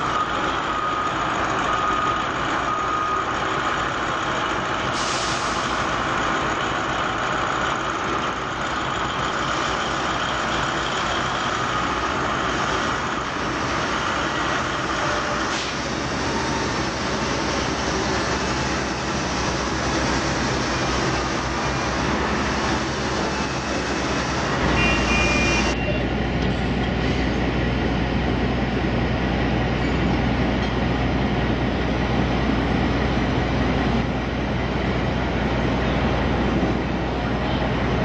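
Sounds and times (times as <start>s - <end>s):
wheel loader engine rumbling: 0.0s - 38.0s
high two-tone beep: 24.8s - 26.0s.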